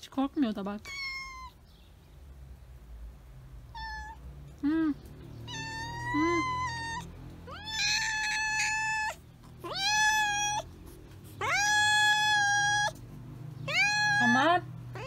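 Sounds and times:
cat meowing: 0.8s - 1.6s, 3.7s - 4.2s, 5.4s - 10.7s, 11.4s - 13.0s, 13.6s - 15.0s.

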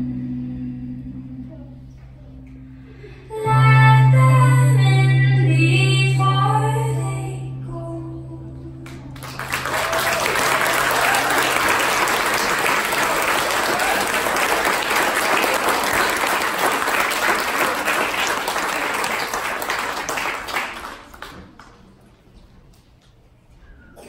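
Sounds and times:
audience applauding: 8.9s - 22.0s.

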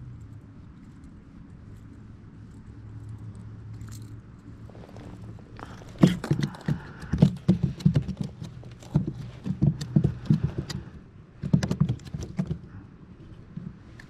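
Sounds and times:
faint handling rustle: 0.6s - 10.9s
fish flopping on plastic: 5.0s - 12.6s.

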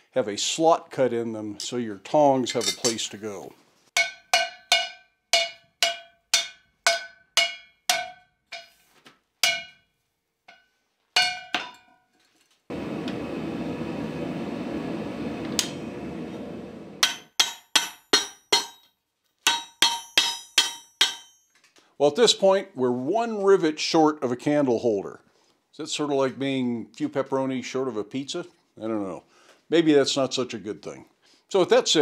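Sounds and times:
hammer striking hot steel: 17.0s - 18.8s, 19.5s - 21.5s.

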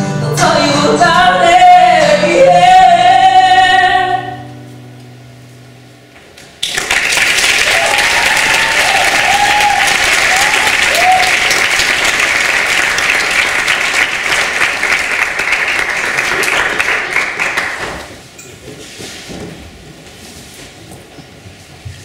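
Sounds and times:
audience applauding: 6.6s - 18.2s.

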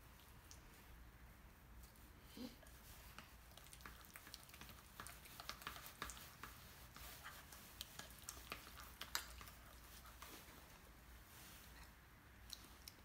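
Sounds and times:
spoon mashing avocado in bowl: 3.1s - 11.0s.

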